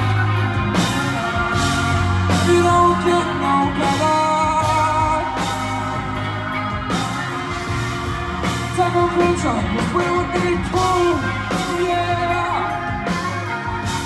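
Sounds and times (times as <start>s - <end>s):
live concert music: 0.0s - 14.0s
person singing: 0.0s - 14.0s.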